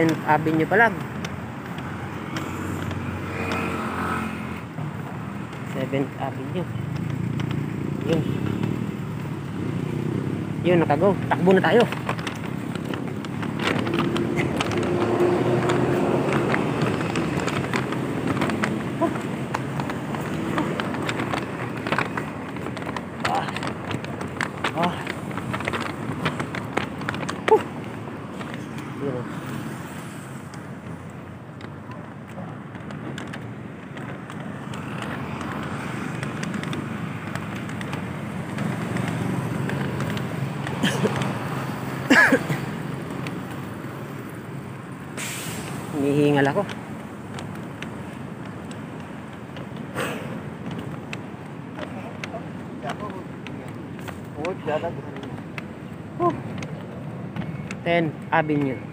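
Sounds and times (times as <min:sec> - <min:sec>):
passing city traffic: 0:00.0 - 0:58.9
running footsteps on pavement: 0:00.0 - 0:58.9.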